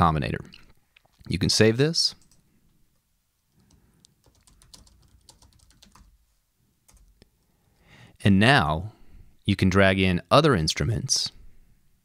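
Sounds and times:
computer keyboard typing: 2.2s - 2.4s, 3.5s - 6.2s, 6.9s - 7.2s.

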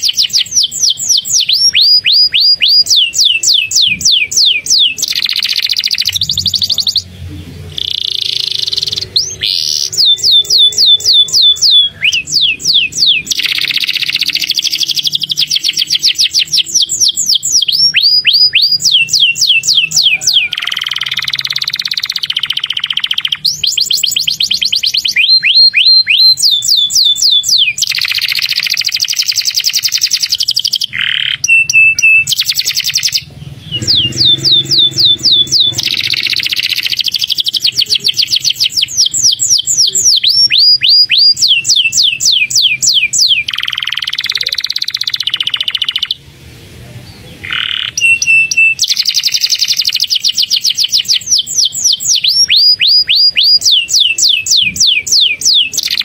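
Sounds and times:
canary singing: 0.0s - 56.0s.

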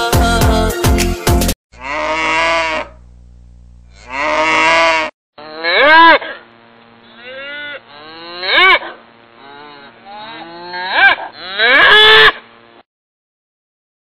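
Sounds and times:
cattle mooing: 1.7s - 3.0s, 3.9s - 6.4s, 7.0s - 12.4s.

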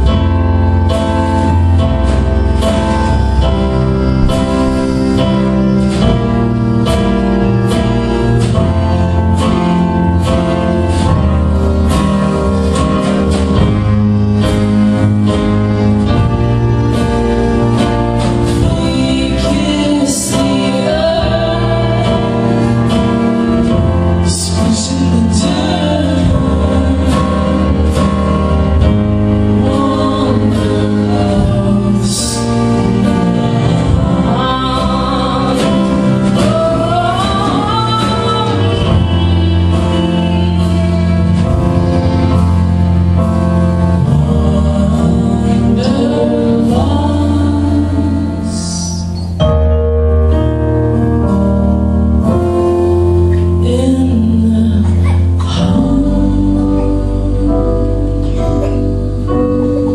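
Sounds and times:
person singing: 14.4s - 49.7s, 52.3s - 59.9s.

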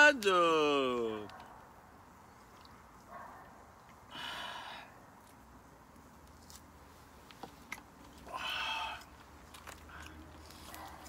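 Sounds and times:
breathy exhalations: 4.1s - 5.0s, 8.2s - 9.1s.

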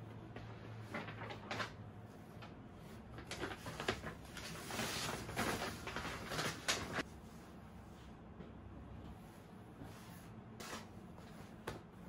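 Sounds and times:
paper bag rustling and crinkling: 0.8s - 7.1s.

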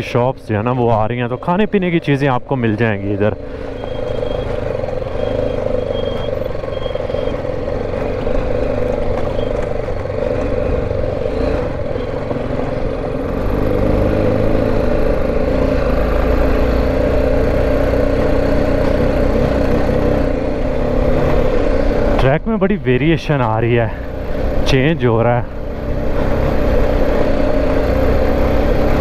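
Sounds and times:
road rumble: 0.0s - 29.0s
motorcycle engine running: 3.0s - 29.0s.

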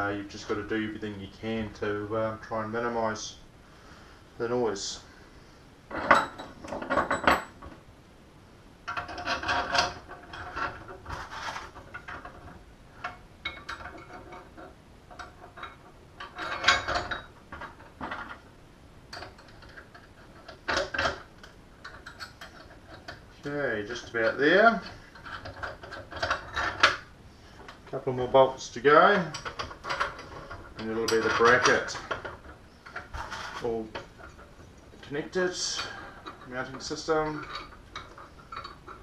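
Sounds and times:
metal bracket clinking and rattling: 5.9s - 7.7s, 8.9s - 18.4s, 19.1s - 23.2s, 23.9s - 27.1s, 29.0s - 39.0s.

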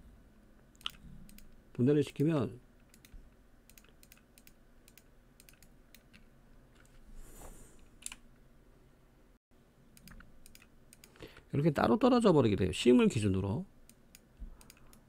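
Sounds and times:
computer mouse and keyboard clicks: 0.7s - 1.6s, 2.2s - 7.0s, 10.0s - 11.2s, 13.9s - 15.0s.

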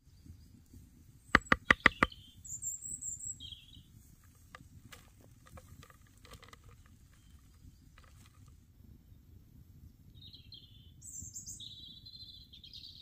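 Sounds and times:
bird chirping: 1.2s - 8.5s, 10.1s - 13.0s
wooden spoon knocking on wooden bowl: 1.4s - 2.1s.

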